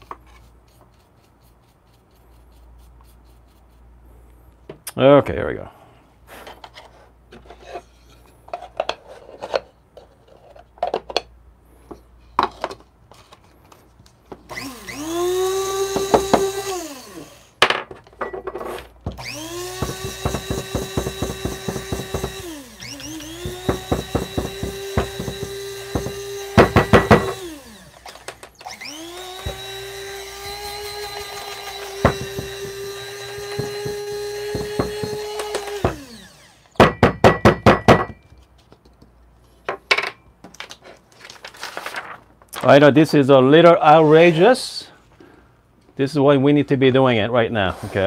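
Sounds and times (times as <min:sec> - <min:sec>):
electric coffee grinder whining: 0:14.5 - 0:17.6, 0:19.2 - 0:36.8.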